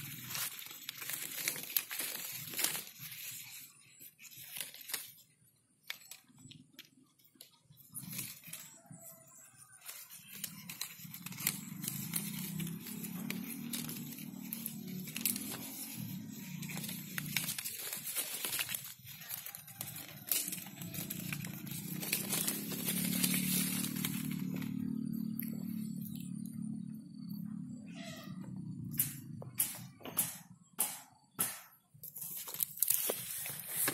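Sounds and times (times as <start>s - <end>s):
leaves and twigs rustling: 0.0s - 27.2s, 32.0s - 33.9s
steady low drone: 20.3s - 30.4s.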